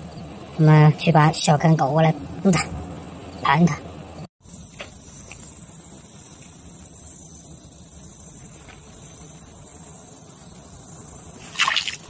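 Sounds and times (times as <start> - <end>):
low outdoor rumble: 0.0 - 11.6
night insects buzzing: 4.4 - 12.0.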